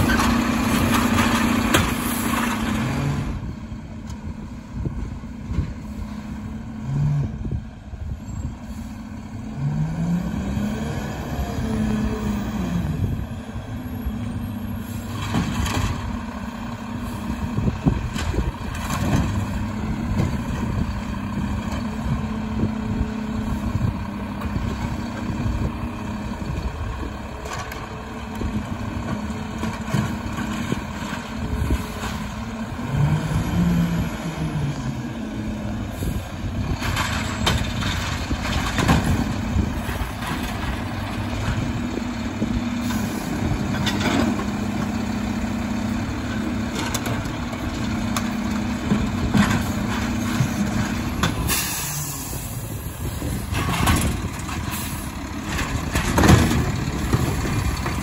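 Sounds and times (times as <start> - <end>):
carts clunking against hopper: 0.0 - 3.2, 36.6 - 45.0, 45.8 - 58.0
diesel truck engine running: 0.0 - 58.0.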